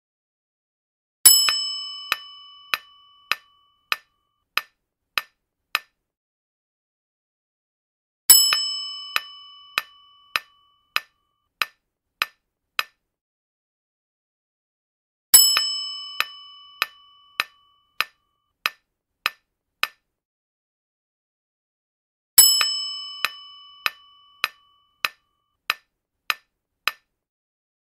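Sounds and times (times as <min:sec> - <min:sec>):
bright bell-like chime: 0:22.4 - 0:25.0.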